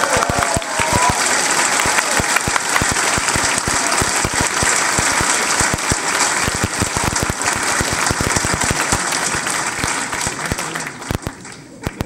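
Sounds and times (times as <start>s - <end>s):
large audience applauding: 0.0s - 12.0s.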